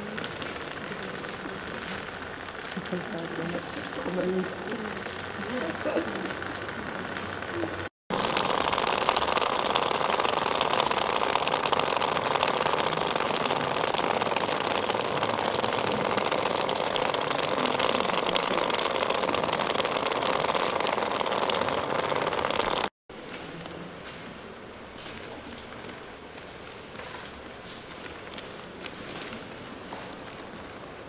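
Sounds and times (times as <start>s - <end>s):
vibrators buzzing on concrete: 0.0s - 23.0s.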